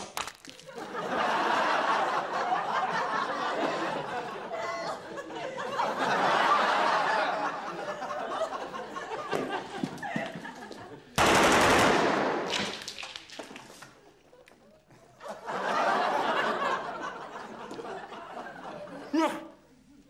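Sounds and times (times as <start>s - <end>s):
studio audience laughter: 0.6s - 11.2s, 15.2s - 19.1s
automatic rifle fire: 11.2s - 13.0s.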